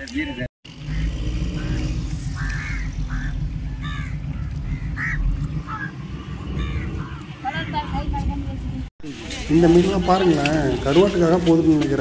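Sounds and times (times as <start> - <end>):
low engine rumble: 0.6 - 12.0.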